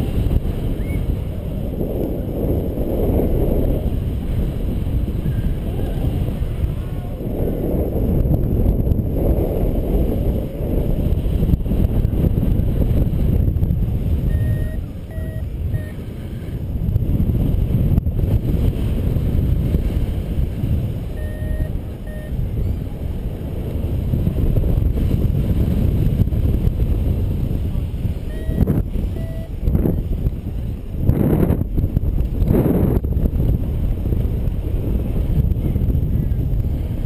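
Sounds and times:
wind rushing over microphone: 0.0s - 37.0s
variometer short beeps: 14.2s - 16.0s, 21.1s - 22.4s, 28.2s - 29.6s.

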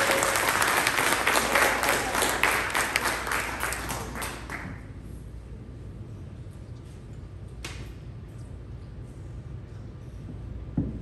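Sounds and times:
audience applauding: 0.0s - 4.8s.

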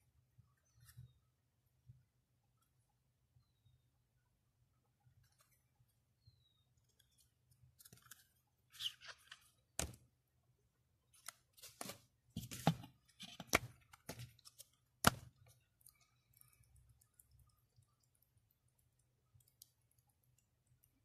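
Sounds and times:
paper pages rustling: 7.8s - 9.9s, 11.1s - 15.2s.

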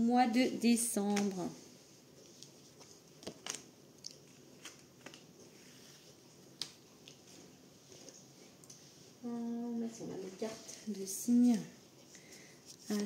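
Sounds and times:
cards rustling: 12.6s - 13.0s.

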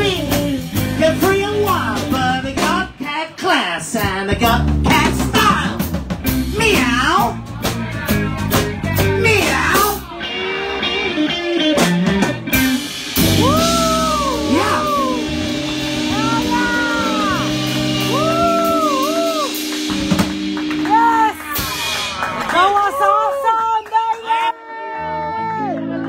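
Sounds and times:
drum kit: 0.0s - 3.1s, 3.8s - 23.1s
rock band playing: 0.0s - 26.0s
lead guitar bending notes: 10.0s - 22.5s.

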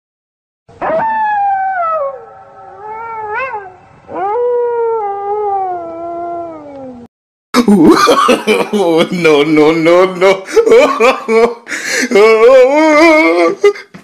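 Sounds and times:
long wailing cries: 0.8s - 7.1s.

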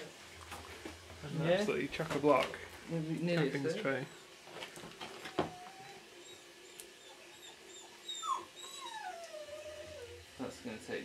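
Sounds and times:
dog whining: 5.2s - 10.3s.

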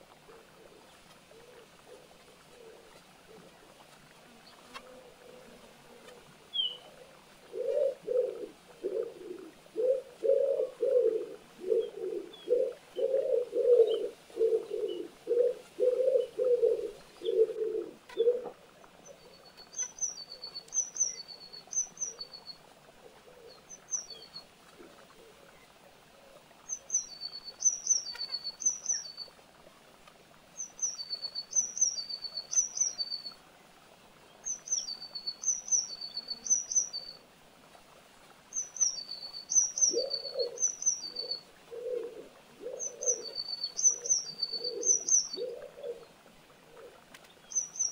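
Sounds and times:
songbird chirping: 0.0s - 29.4s, 30.5s - 33.5s, 34.2s - 37.2s, 38.5s - 47.9s
pigeon cooing: 0.3s - 3.5s, 5.0s - 18.6s, 39.8s - 47.0s.

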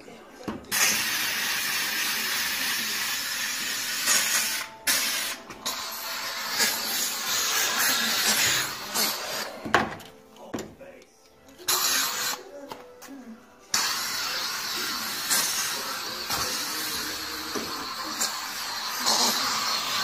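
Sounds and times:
steam cleaner hissing: 0.7s - 9.6s, 11.7s - 12.4s, 13.7s - 20.0s.

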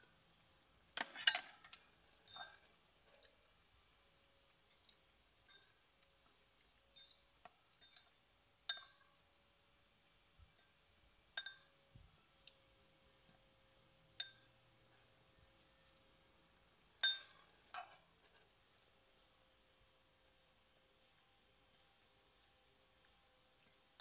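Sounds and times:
faint steady hum: 0.0s - 24.0s
fork clinking against ceramic bowl: 1.0s - 2.6s, 7.0s - 9.1s, 11.4s - 11.8s, 14.2s - 14.6s, 17.0s - 18.1s.

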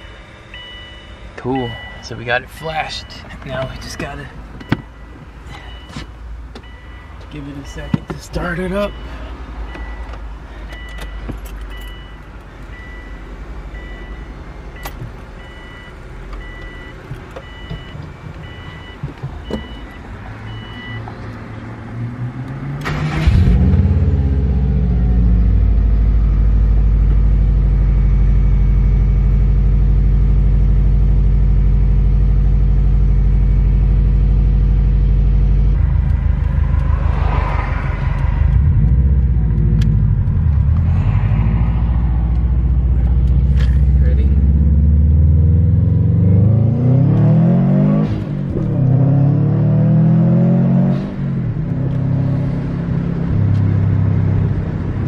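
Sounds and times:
car chime beeping: 0.0s - 21.1s
car engine starting and idling: 0.0s - 55.0s.

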